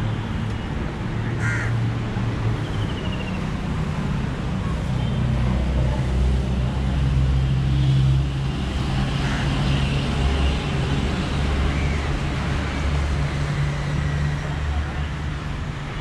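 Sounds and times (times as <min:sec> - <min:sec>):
road traffic engine hum: 0:00.0 - 0:16.0.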